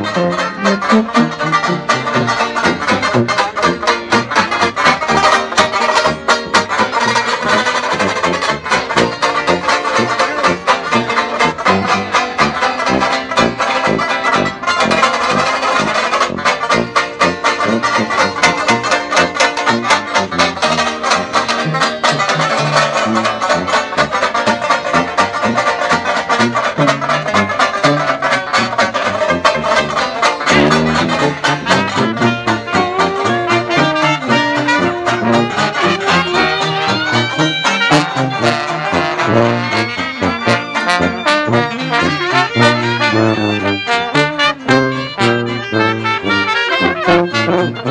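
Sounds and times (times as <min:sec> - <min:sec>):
banjos strumming: 0:00.0 - 0:47.9
sousaphone bass lines: 0:00.0 - 0:47.9
trombone lines: 0:00.0 - 0:47.9.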